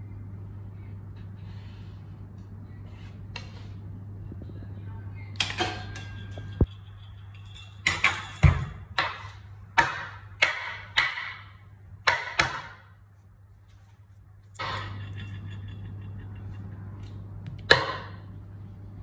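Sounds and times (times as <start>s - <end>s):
low hum: 13.0s - 19.0s.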